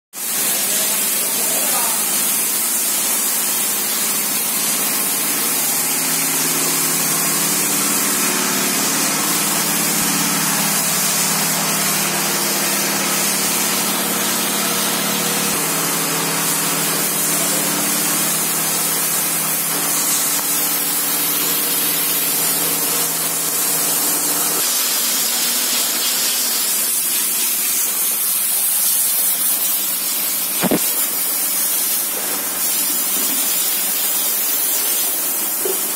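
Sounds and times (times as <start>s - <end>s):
pressure washer spraying water: 0.2s - 35.9s
sharp knock: 30.6s - 30.9s.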